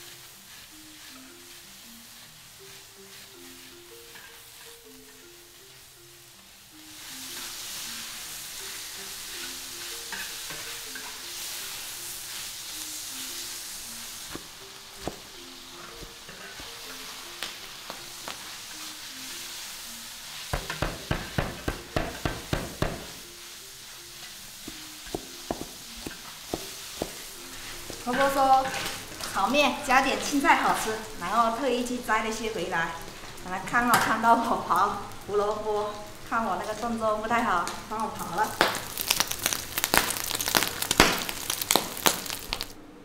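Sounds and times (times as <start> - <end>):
spatula stirring in a wok: 0.0 - 31.7
food sizzling in a wok: 0.0 - 43.0
cleaver chopping on wooden board: 20.6 - 23.1.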